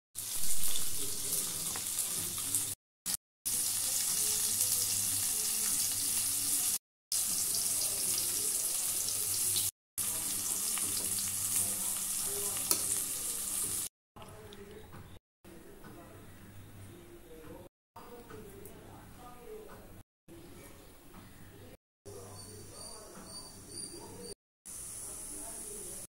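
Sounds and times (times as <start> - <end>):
sizzling hiss: 24.7 - 26.0.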